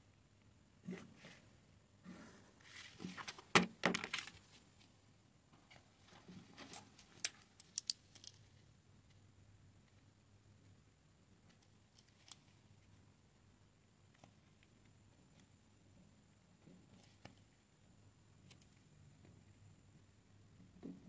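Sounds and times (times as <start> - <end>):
paper rustling: 2.6 - 4.6.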